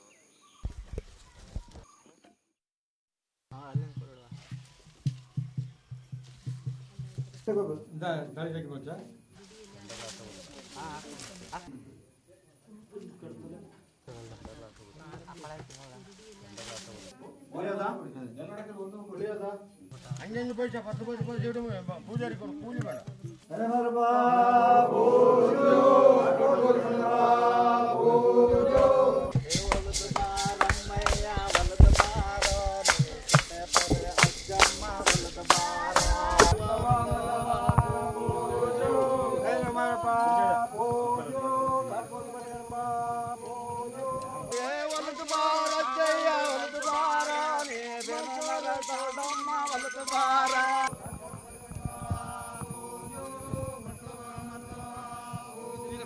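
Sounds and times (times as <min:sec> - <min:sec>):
drums: 0:03.5 - 0:07.6, 0:19.9 - 0:23.4, 0:28.6 - 0:56.0
voices chanting held notes: 0:20.0 - 0:56.0
song with rhythmic clicks: 0:29.3 - 0:39.4, 0:42.7 - 0:51.0
rattling percussion: 0:29.3 - 0:56.0.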